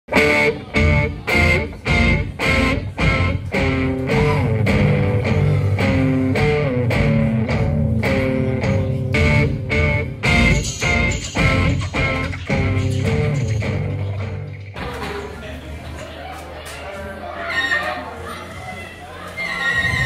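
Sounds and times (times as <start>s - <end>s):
guitar rock music: 0.1s - 14.8s.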